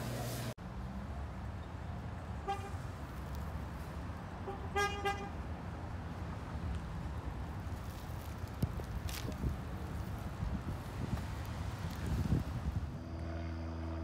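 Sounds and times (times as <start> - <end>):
car horn honking: 2.4 - 2.8, 4.4 - 5.4, 13.0 - 14.0.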